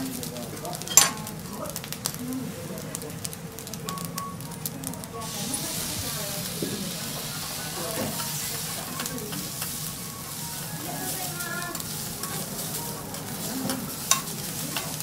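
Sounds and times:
rice sizzling on griddle: 0.0s - 15.0s
metal spatula clicks and scrapes: 11.7s - 15.0s.

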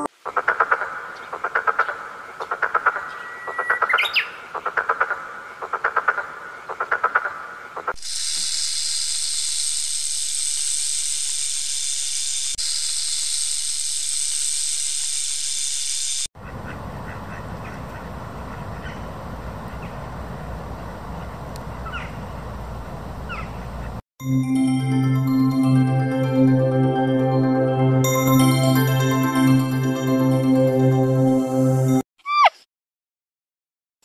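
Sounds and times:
tree frog croaking: 0.2s - 3.1s.

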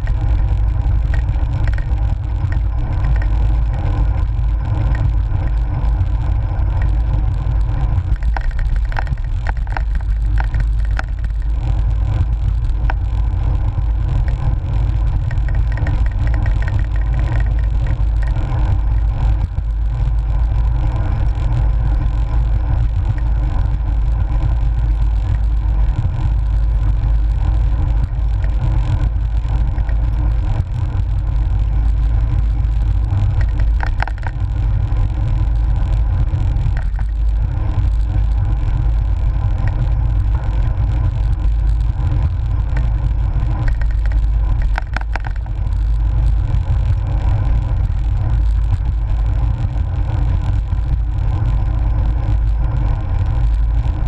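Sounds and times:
road and tyre noise: 0.0s - 54.0s
wind buffeting microphone: 0.0s - 54.0s.

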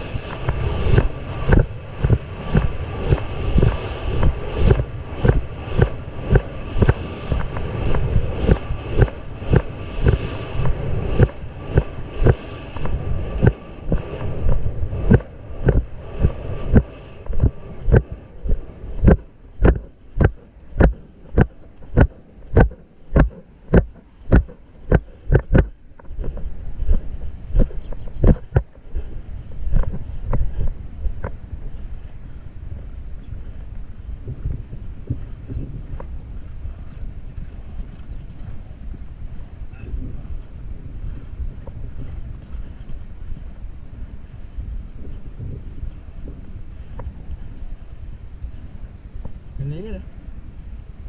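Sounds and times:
wind on microphone: 0.0s - 51.0s
horse hoofbeats on dirt: 15.1s - 26.4s.

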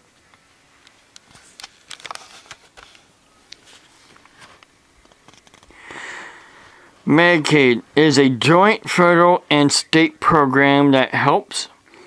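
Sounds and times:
camera handling rustles and clicks: 0.9s - 5.7s.

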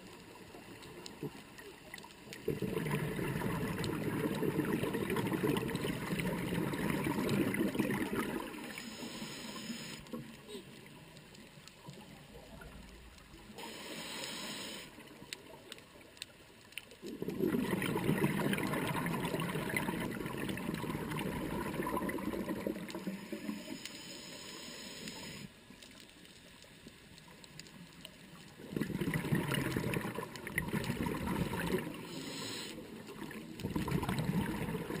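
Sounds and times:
exhaled air bubbling: 1.1s - 10.6s, 17.0s - 23.6s, 28.5s - 35.0s
hissing regulator inhalations: 8.6s - 10.2s, 13.6s - 15.0s, 23.0s - 25.6s, 32.0s - 33.0s.

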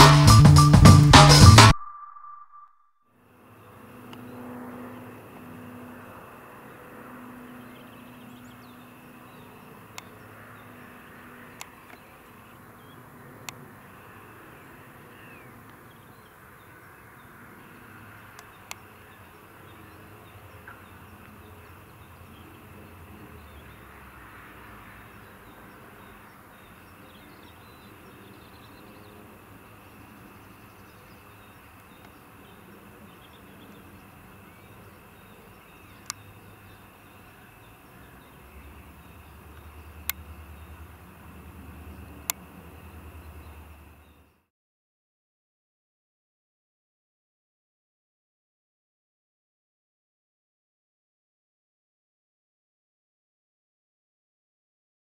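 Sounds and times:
distant aircraft engines droning: 3.2s - 44.4s
sharp clicks: 36.0s - 36.3s, 42.2s - 42.5s.

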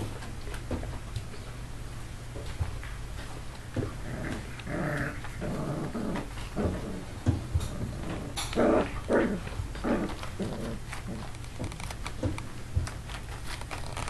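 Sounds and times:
puppy growling: 3.7s - 12.2s.

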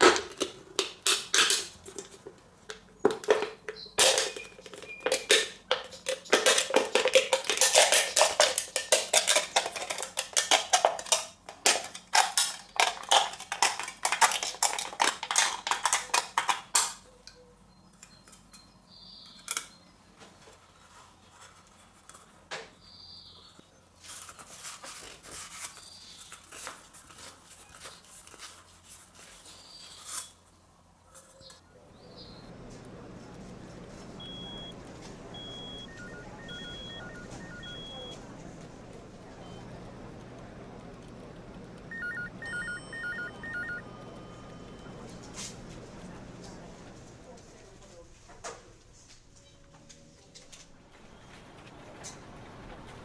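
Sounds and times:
aluminum can crinkling: 0.0s - 17.0s
metal can halves tapping: 0.0s - 17.0s.

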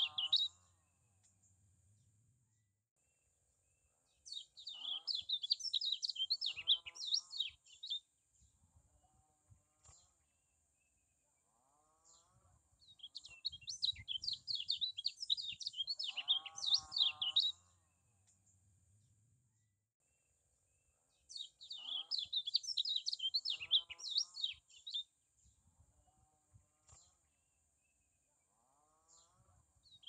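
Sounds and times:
bird twittering and warbling: 0.0s - 0.6s, 4.3s - 8.0s, 12.1s - 17.6s, 21.3s - 25.0s.

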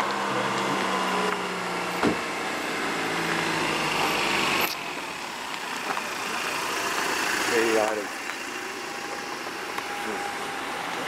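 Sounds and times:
van engine running: 0.0s - 11.0s.

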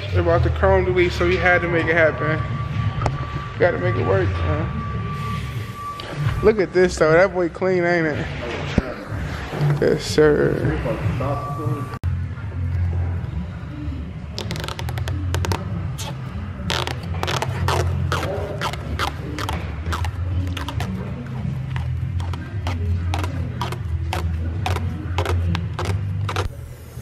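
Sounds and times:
clicks and scrapes of handwork: 14.4s - 26.5s.

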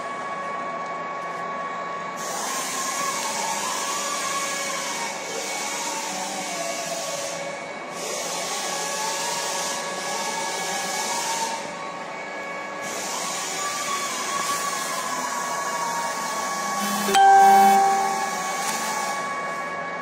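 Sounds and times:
faint held tones: 16.8s - 18.8s
slowly wavering tone: 16.8s - 19.0s.

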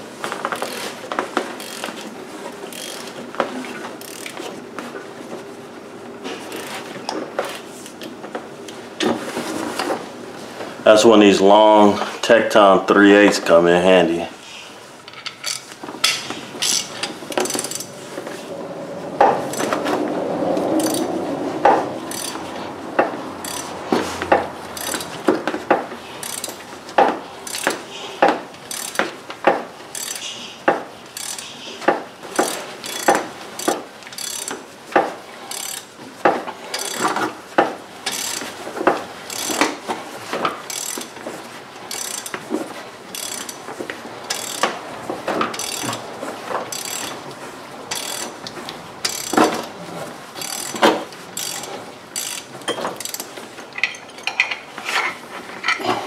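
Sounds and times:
ratchet clicking: 0.5s - 0.9s, 1.6s - 2.0s, 2.7s - 3.1s, 4.0s - 4.4s, 6.5s - 6.8s, 16.6s - 17.9s, 19.5s - 19.8s, 20.8s - 21.1s, 22.1s - 22.4s, 23.4s - 25.2s, 26.2s - 27.8s, 28.6s - 29.0s, 29.9s - 30.4s, 31.1s - 31.6s, 32.4s - 34.6s, 35.5s - 35.9s, 36.7s - 37.2s, 38.0s - 38.5s, 39.2s - 39.8s, 40.7s - 41.1s, 41.9s - 42.4s, 43.1s - 43.6s, 44.3s - 44.8s, 45.5s - 46.0s, 46.7s - 47.2s, 47.9s - 48.4s, 49.0s - 49.5s, 50.4s - 53.3s.

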